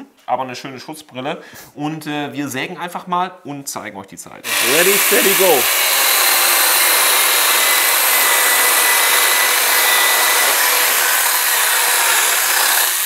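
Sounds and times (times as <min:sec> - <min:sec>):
chainsaws cutting timber: 0:04.5 - 0:13.0.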